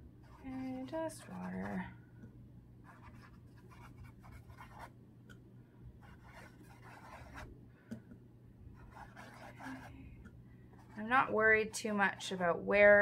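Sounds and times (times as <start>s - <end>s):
paintbrush scrubbing canvas: 0.2s - 1.9s, 2.8s - 4.9s, 6.0s - 7.5s, 8.7s - 10.0s, 10.8s - 12.6s.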